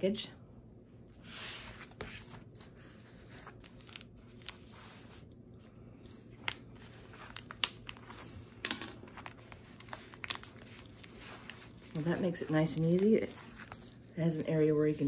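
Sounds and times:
rustling and crinkling: 1.2 - 15.0
package being torn open: 6.4 - 14.0.

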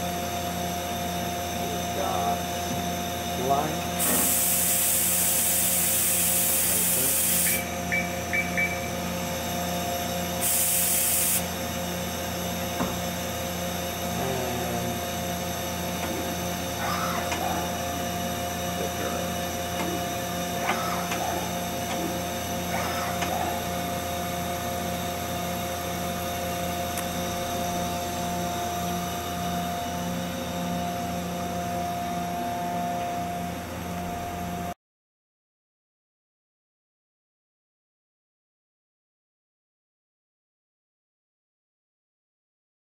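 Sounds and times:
machine humming: 0.0 - 34.8
spray nozzles hissing: 4.0 - 7.7, 10.4 - 11.5
short beeps: 7.4 - 9.0.

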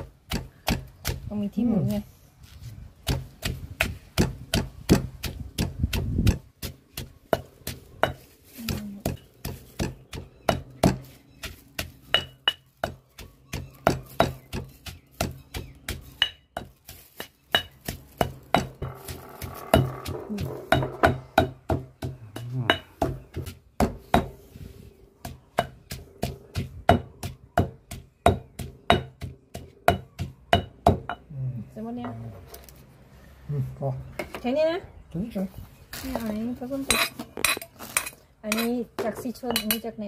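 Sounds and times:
pestle pounding in stone mortar: 0.0 - 1.3, 2.9 - 24.4, 25.2 - 31.3.

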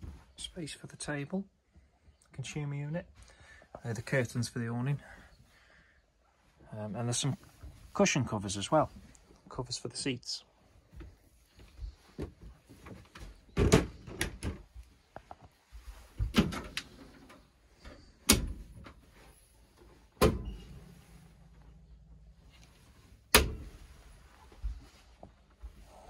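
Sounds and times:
door latch clicks: 18.2 - 18.6.

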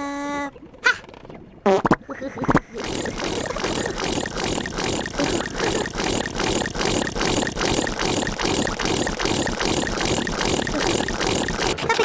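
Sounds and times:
machine running rhythmically: 2.6 - 12.0.

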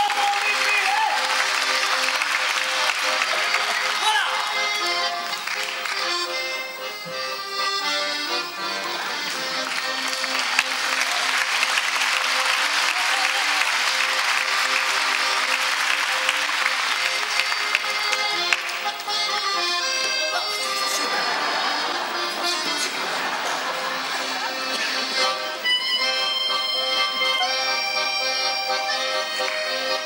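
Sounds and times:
audience applause: 0.0 - 6.3, 8.7 - 19.1, 20.9 - 25.6
accordion music: 0.0 - 30.0.

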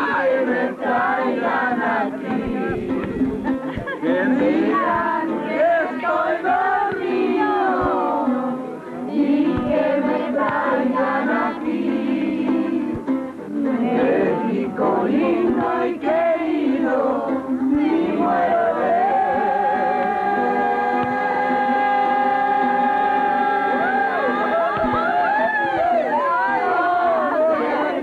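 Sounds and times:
group singing along: 0.0 - 28.0.

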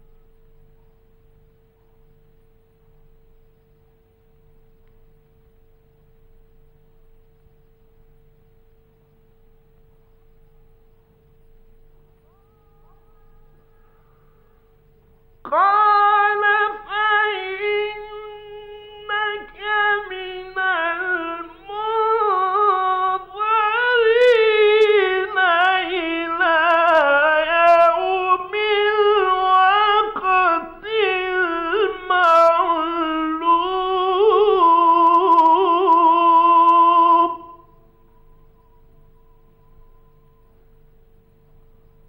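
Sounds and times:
faint steady tone: 0.0 - 42.0
man reciting melodic chant: 15.5 - 37.7.

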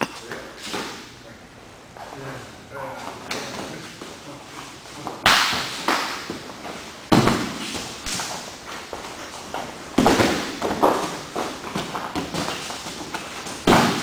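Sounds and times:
bodies slapping on padded mat: 5.1 - 14.0.

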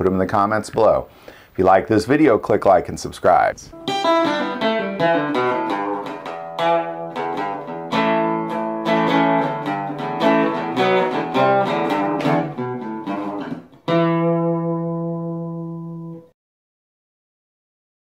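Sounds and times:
acoustic guitar plucked notes: 3.7 - 16.3
ringing guitar chord: 3.8 - 16.3.

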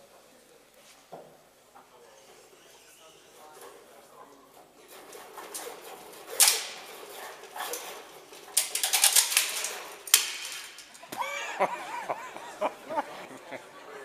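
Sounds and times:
model tower rattling on shake table: 4.9 - 11.0
voices: 10.6 - 14.0.

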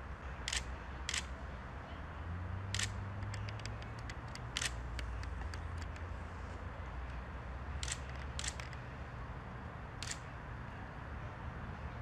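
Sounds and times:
sharp clicks: 0.5 - 1.3, 2.7 - 6.1, 7.8 - 8.8, 10.0 - 10.2.

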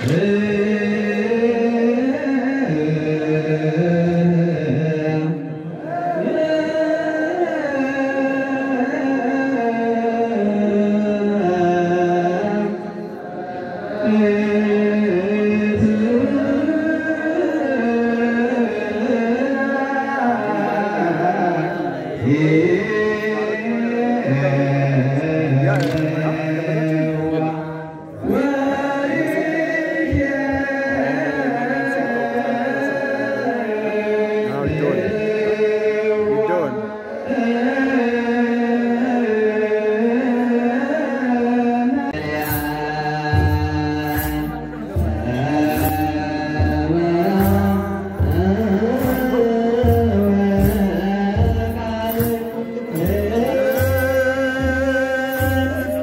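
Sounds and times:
group chanting a hymn: 0.0 - 56.0
drum beating: 42.2 - 56.0.

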